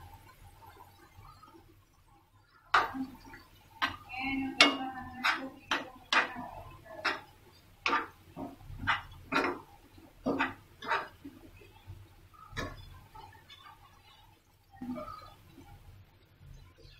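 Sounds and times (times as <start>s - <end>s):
spoon knocking and scraping pan: 2.6s - 15.8s.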